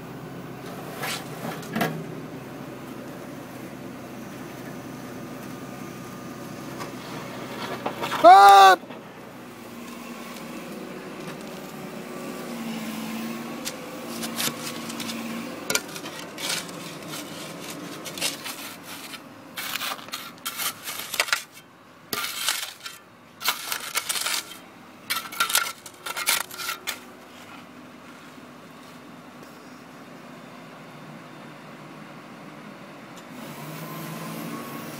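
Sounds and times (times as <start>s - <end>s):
stones and gravel scraping in soil: 11.2s - 28.4s.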